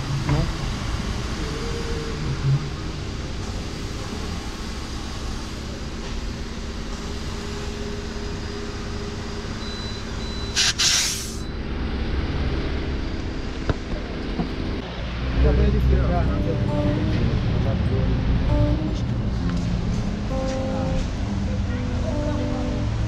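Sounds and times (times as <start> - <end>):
compressed air hiss: 10.6 - 11.4
tyre being inflated: 10.6 - 11.4.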